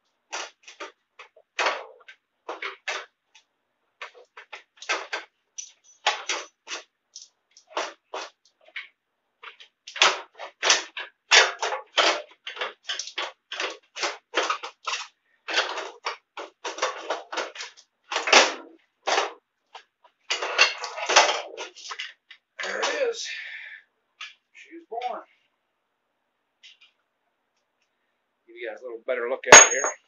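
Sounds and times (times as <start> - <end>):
metal clicks and clanks of tools: 29.5 - 30.0.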